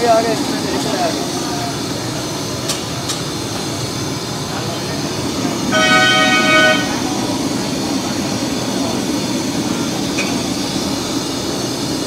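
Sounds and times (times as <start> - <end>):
gas burner flames roaring: 0.0 - 12.0
vehicle horn: 5.7 - 7.0.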